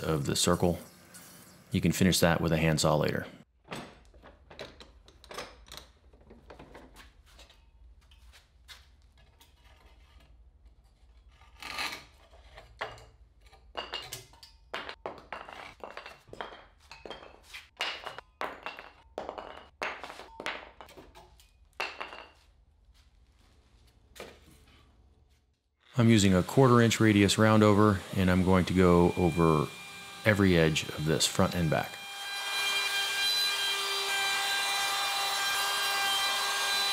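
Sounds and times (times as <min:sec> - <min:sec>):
handsaw cutting plywood: 0:26.0 - 0:36.9.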